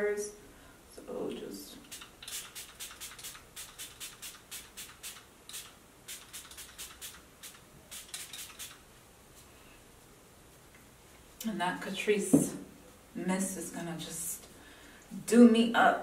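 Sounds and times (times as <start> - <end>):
spray bottle hissing: 1.8 - 8.8.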